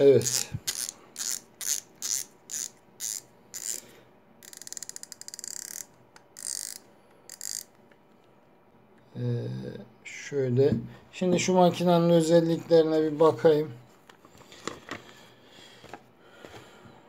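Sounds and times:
fishing reel clicker ticking: 0:04.4 - 0:07.7.

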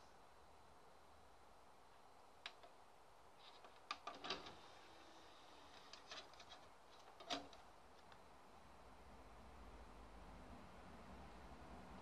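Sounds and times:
disc being handled clicks: 0:05.7 - 0:08.1.

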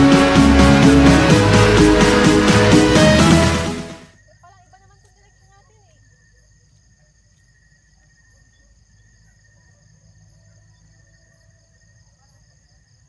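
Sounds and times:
crickets chirring: 0:04.1 - 0:13.0.

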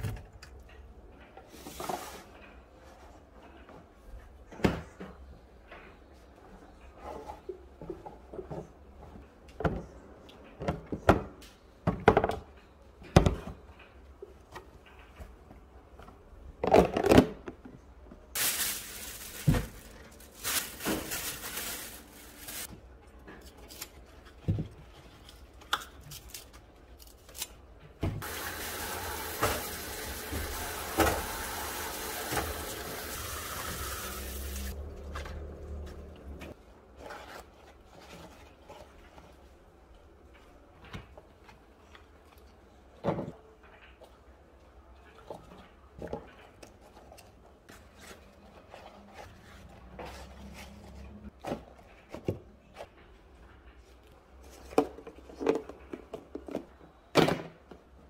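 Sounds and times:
tap water running into sink: 0:28.2 - 0:34.7.

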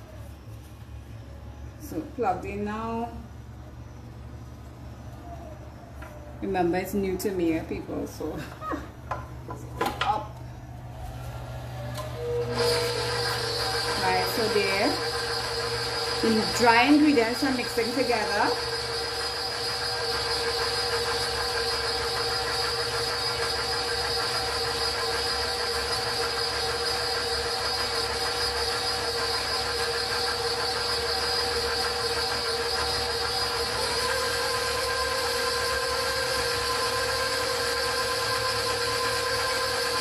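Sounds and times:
stand mixer motor whining: 0:10.8 - 0:40.0.

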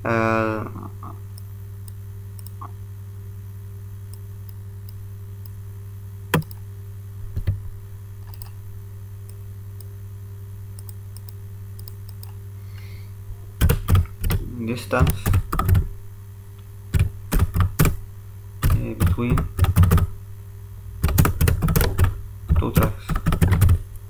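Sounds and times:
steady low hum: 0:00.0 - 0:24.0
faint small ticks: 0:01.3 - 0:02.6, 0:10.8 - 0:12.4
computer mouse clicking: 0:01.4 - 0:02.6, 0:06.4 - 0:06.6, 0:08.2 - 0:08.6, 0:10.8 - 0:12.4.

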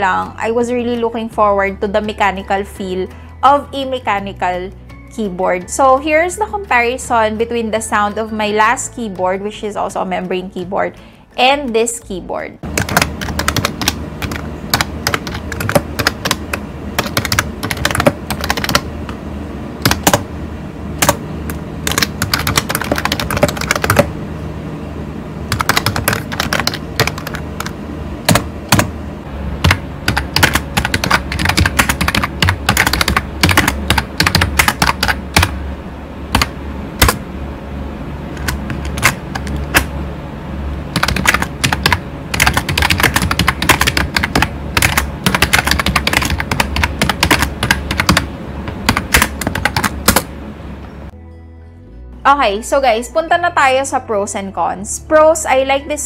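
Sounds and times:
typing on membrane keyboard: 0:12.6 - 0:18.8, 0:21.8 - 0:24.1, 0:25.5 - 0:27.7, 0:29.6 - 0:35.5, 0:38.4 - 0:39.8, 0:41.0 - 0:50.2.

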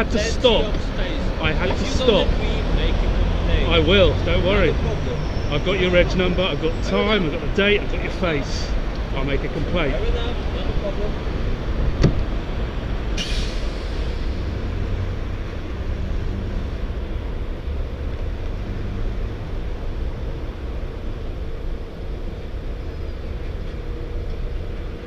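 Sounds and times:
engines idling: 0:00.0 - 0:25.0
road traffic rumble: 0:00.0 - 0:25.0.

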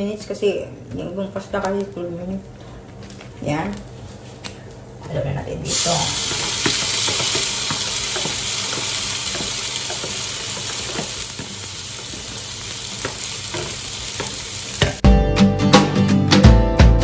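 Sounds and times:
fat sizzling in a frying pan: 0:05.6 - 0:15.0.

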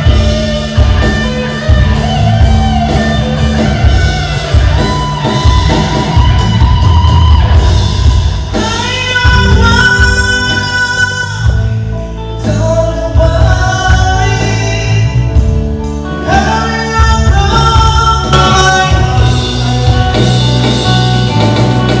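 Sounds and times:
live band playing: 0:00.0 - 0:22.0
person singing: 0:08.4 - 0:20.2.

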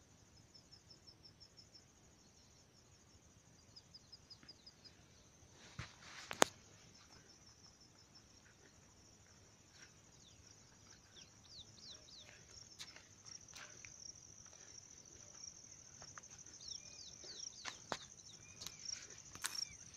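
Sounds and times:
pulsing insect trill: 0:06.3 - 0:19.9
bird chirps: 0:10.2 - 0:13.0, 0:15.7 - 0:19.9.

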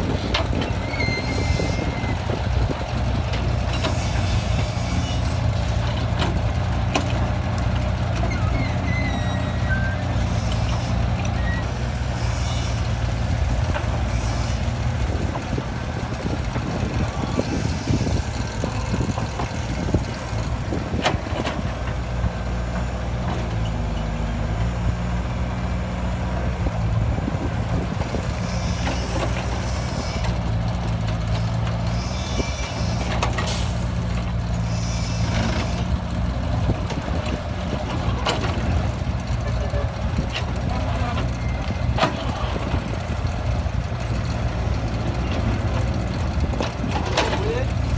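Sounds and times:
excavator diesel engine under load: 0:00.0 - 0:47.9.

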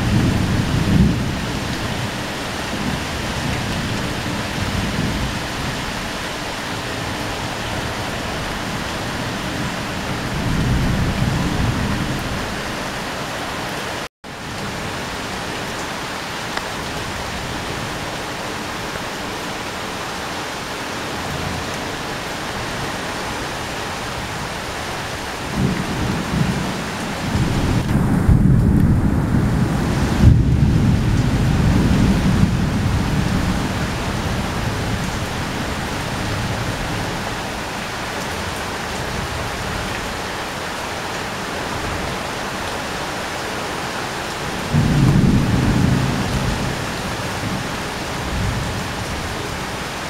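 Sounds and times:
heavy rain on a sheet metal roof: 0:00.0 - 0:50.0
strong wind: 0:00.0 - 0:50.0.

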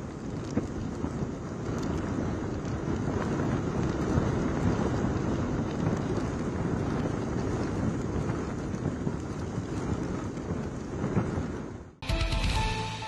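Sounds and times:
gusty wind buffeting microphone: 0:00.0 - 0:12.0
rain: 0:00.0 - 0:12.0.

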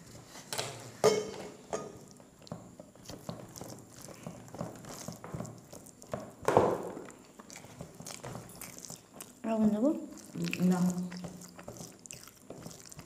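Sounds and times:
fingers mixing rice on plates: 0:01.1 - 0:13.0
soft mouth sounds: 0:07.1 - 0:13.0.

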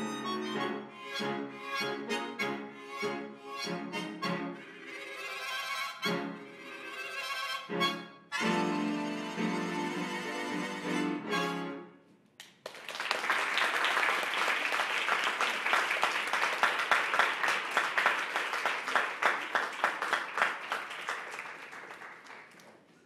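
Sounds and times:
audience applauding: 0:12.4 - 0:23.0.

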